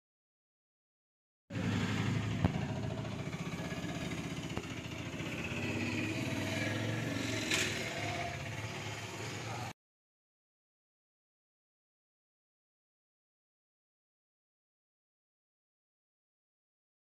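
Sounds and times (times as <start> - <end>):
small engine running: 1.5 - 9.8.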